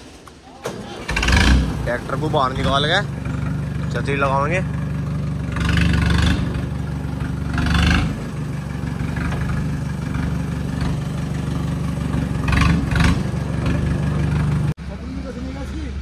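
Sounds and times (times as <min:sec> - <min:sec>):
diesel tractor engine idling: 0:00.0 - 0:16.0.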